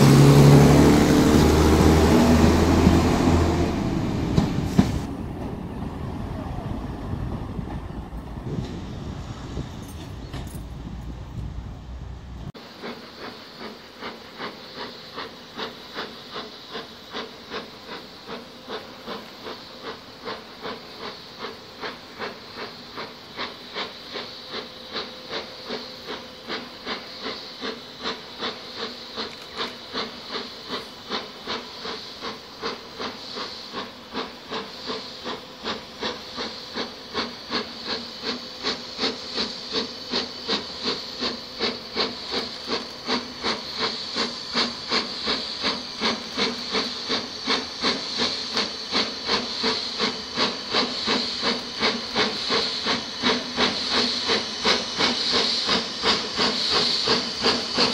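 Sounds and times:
steam hiss: 0.0 - 57.9
steam locomotive exhaust beats: 0.0 - 57.9.

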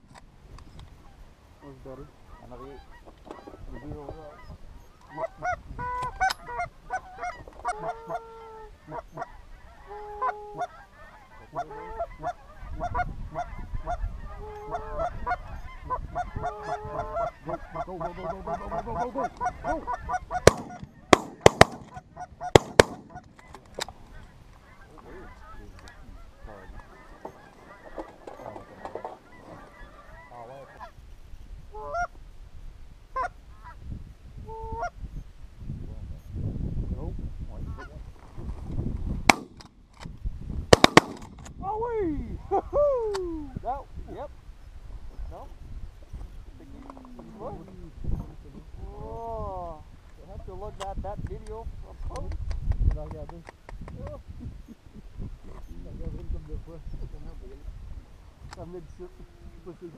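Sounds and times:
geese honking: 1.0 - 31.0, 31.7 - 32.2, 33.1 - 33.8, 34.5 - 35.0, 40.7 - 41.4
shotgun shots: 20.4 - 23.4, 39.3 - 39.8, 40.7 - 41.5.

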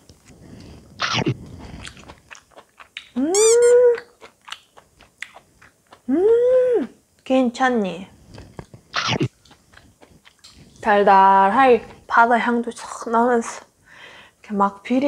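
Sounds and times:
woman chewing: 0.1 - 6.1, 8.2 - 10.9
wet mouth clicks: 0.6 - 6.0, 8.3 - 10.8
woman humming high-pitched: 3.2 - 4.0, 6.1 - 7.0.

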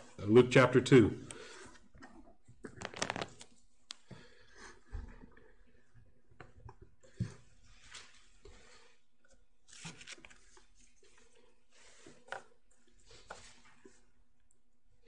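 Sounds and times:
thin pages being turned: 2.7 - 3.6, 9.7 - 11.1.

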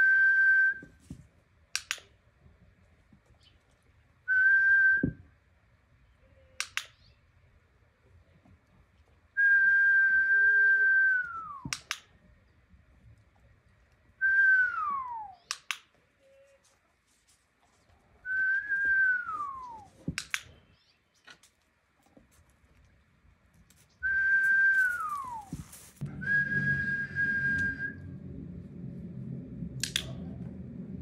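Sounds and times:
sharp click: 1.7 - 2.1, 6.6 - 7.0, 11.6 - 12.1, 15.5 - 15.9, 20.2 - 20.6, 29.8 - 30.2
person whistling: 18.3 - 19.9, 24.0 - 28.1.

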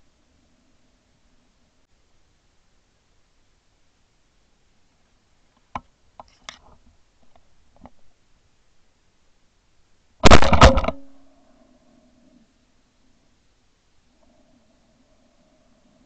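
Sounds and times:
shotgun blast: 10.2 - 11.2.

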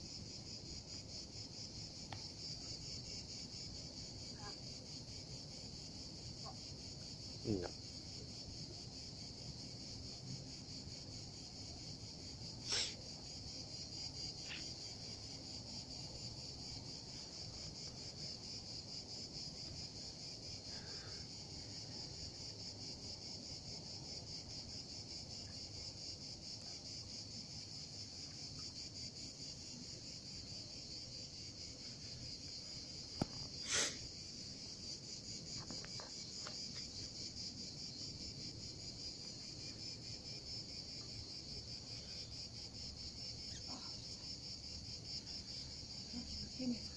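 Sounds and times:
insects trilling: 0.0 - 46.9.

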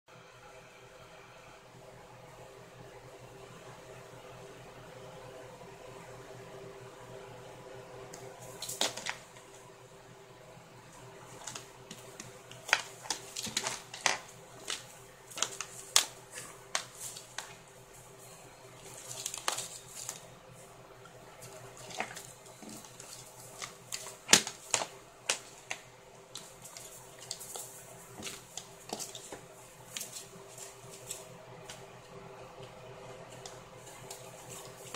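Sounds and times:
papers rustling: 8.2 - 9.6, 11.2 - 20.4, 21.2 - 32.0, 32.6 - 34.9
kitten scuffling on desk: 11.3 - 18.2, 21.4 - 31.8, 33.3 - 34.9.

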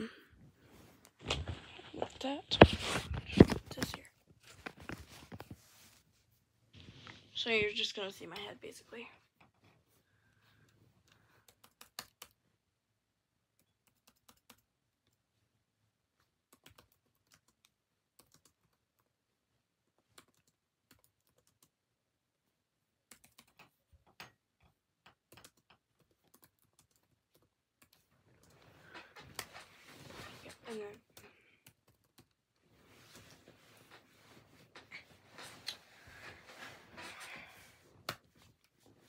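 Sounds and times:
typing on a keyboard: 11.4 - 12.4, 13.6 - 15.2, 16.5 - 19.1, 20.1 - 21.8, 23.1 - 24.4, 25.0 - 28.6, 31.1 - 32.4.

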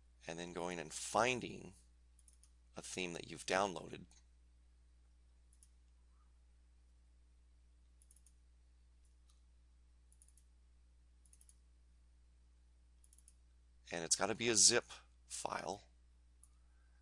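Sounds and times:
low electrical hum: 0.0 - 17.0
computer mouse clicks: 2.2 - 2.6, 5.5 - 5.8, 8.0 - 8.4, 10.1 - 10.5, 11.2 - 11.6, 13.0 - 13.4, 16.4 - 16.6.

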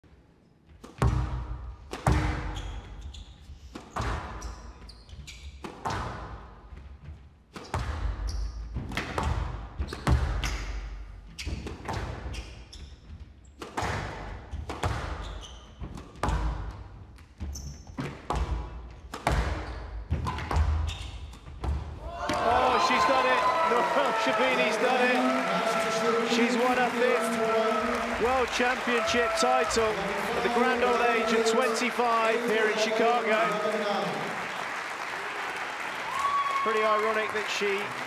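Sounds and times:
squash ball hits: 0.8 - 2.5, 18.0 - 22.5
shoes squeaking on court: 2.4 - 6.0, 11.3 - 13.6, 14.5 - 16.4, 17.2 - 21.8.

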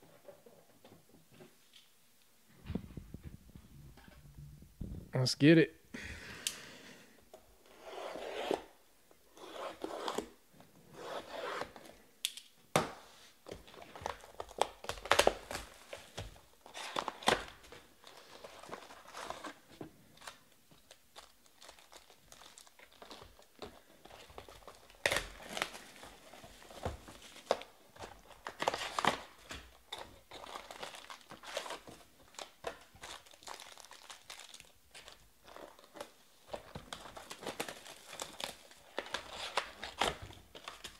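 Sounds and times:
plastic wrap and foil crinkling: 13.5 - 40.9.

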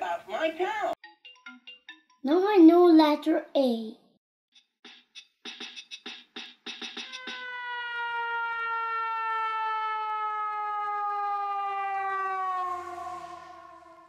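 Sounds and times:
long tone sliding down in pitch: 7.2 - 14.0.

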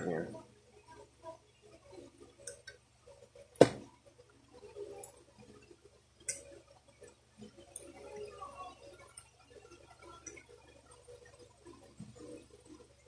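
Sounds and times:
small clicks and taps of parts: 2.4 - 3.7, 4.9 - 8.0.

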